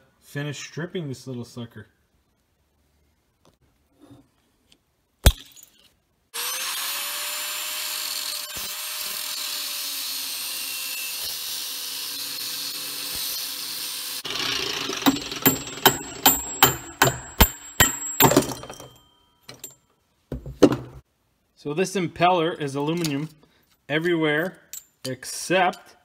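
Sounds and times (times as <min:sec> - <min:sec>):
angle grinder cutting steel: 0:06.4 - 0:18.2
ringing hammer blows on metal: 0:15.0 - 0:19.7.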